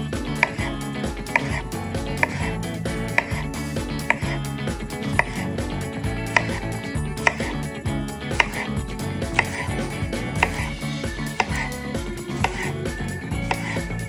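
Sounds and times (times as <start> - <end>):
background music: 0.0 - 14.0
knife tapping cutting board: 0.3 - 0.7, 1.3 - 4.4, 5.1 - 7.6, 8.3 - 11.7, 12.4 - 12.7, 13.4 - 13.8.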